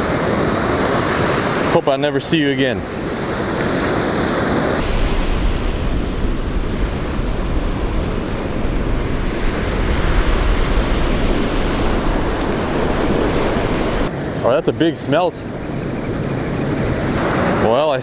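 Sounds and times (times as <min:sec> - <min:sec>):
ocean surf breaking: 0:00.0 - 0:18.0
wind buffeting microphone: 0:00.0 - 0:18.0.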